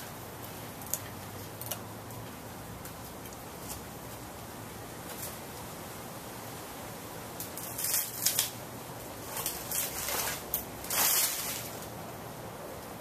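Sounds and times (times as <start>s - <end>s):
rustling bursts: 9.2s - 11.9s.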